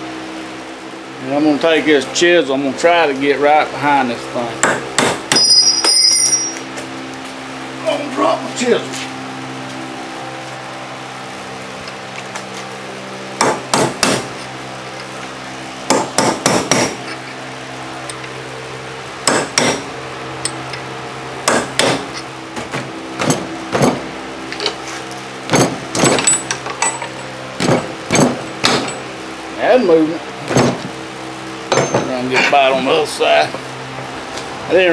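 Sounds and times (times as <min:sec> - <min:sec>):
hammer striking steel chisel: 0:04.6 - 0:06.6, 0:13.4 - 0:14.5, 0:15.9 - 0:17.2, 0:19.2 - 0:19.8, 0:21.4 - 0:22.2, 0:25.5 - 0:29.0, 0:31.7 - 0:32.1.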